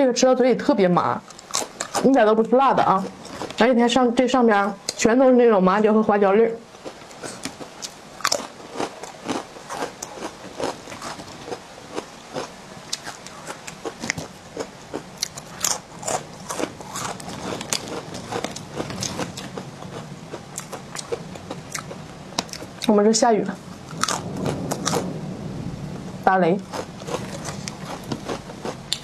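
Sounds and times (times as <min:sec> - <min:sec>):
rice crackers crunching: 0:01.3 - 0:02.2, 0:06.8 - 0:22.7, 0:23.8 - 0:25.1, 0:26.6 - 0:29.0.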